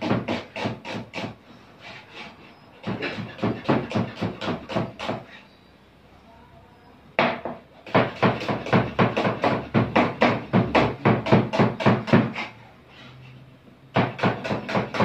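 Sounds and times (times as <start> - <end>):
knife chopping on cutting board: 0.0 - 1.4, 2.8 - 5.3, 7.3 - 12.5, 14.0 - 15.0.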